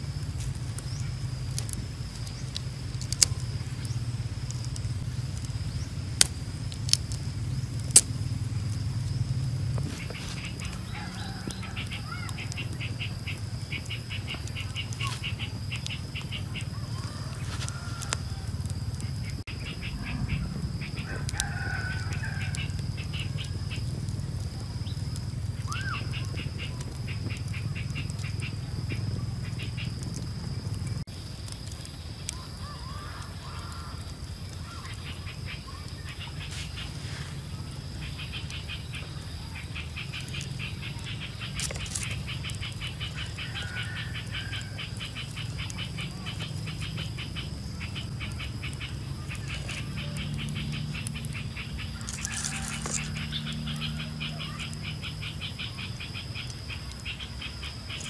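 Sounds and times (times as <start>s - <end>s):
low rumble: 0.0s - 31.1s
rapid high-pitched clicking: 44.0s - 58.0s.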